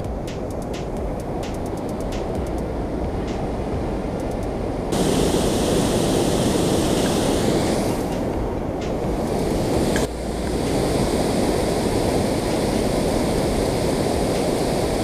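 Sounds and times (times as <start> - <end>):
water rushing over spillway: 5.0 - 8.4, 9.0 - 15.0.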